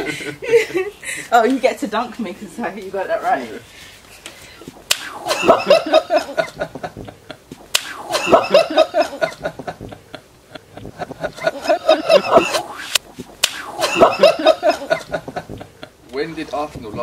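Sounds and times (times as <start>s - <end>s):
woman laughing: 0.0s - 1.3s, 5.2s - 7.4s, 8.0s - 12.7s, 13.7s - 16.0s.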